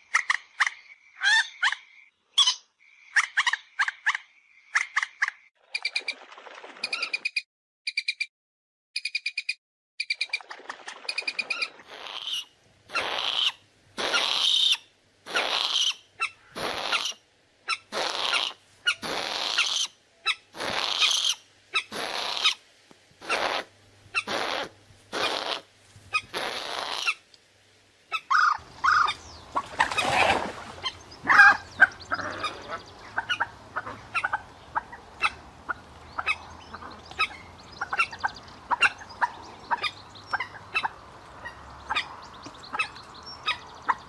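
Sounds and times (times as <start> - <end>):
faint steady background noise: 11.7 - 44.0
moorhen calls: 28.1 - 44.0.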